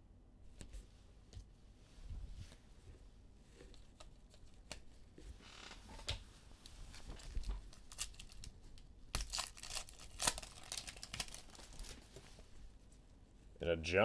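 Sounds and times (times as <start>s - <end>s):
wrappers tearing and crinkling: 7.2s - 8.5s, 9.1s - 12.2s.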